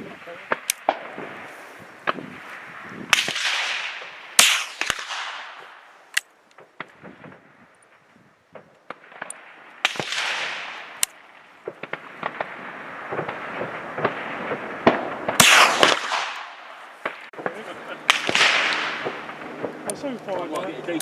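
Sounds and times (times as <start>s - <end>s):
rifle shots echoing: 0.2s - 20.0s.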